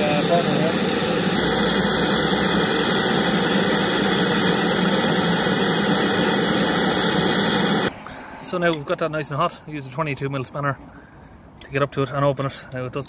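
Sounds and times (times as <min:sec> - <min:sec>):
blowtorch hissing: 0:00.0 - 0:07.9.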